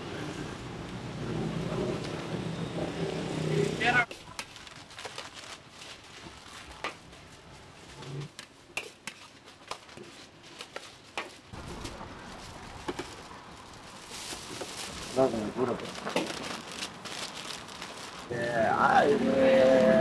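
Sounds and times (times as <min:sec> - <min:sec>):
paper wrapping rustling: 0:04.1 - 0:08.6, 0:09.2 - 0:18.3.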